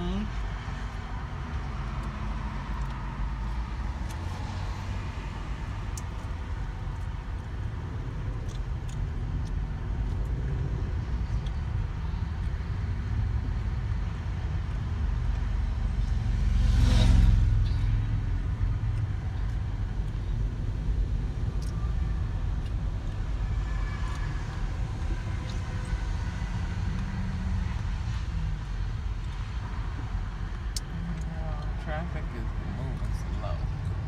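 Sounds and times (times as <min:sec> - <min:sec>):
highway road noise: 0:00.0 - 0:34.0.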